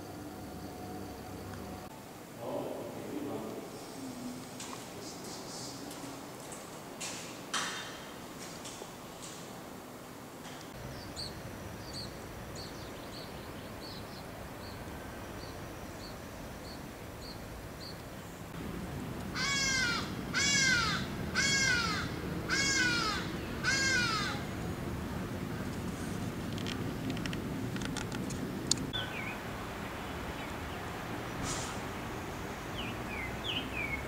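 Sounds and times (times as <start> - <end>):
crow cawing: 19.3 - 24.5.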